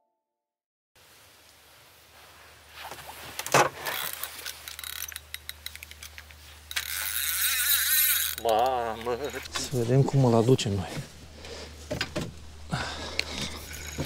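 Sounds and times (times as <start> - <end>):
fishing gear clicks and scrapes: 3.3 - 9.8, 13.1 - 14.0
fishing reel ratcheting: 3.8 - 9.5, 13.6 - 14.0.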